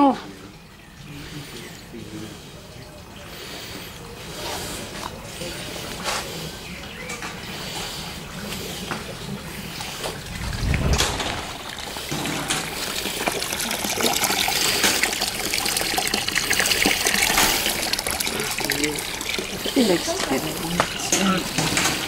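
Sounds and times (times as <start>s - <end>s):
low rumble: 10.0s - 12.6s
fountain water trickling and splashing: 11.2s - 22.0s.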